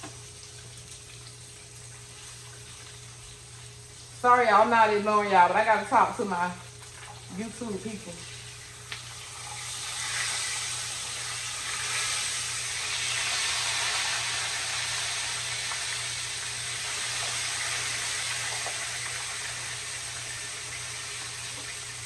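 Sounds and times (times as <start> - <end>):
fish frying in sizzling oil: 0.0 - 22.0.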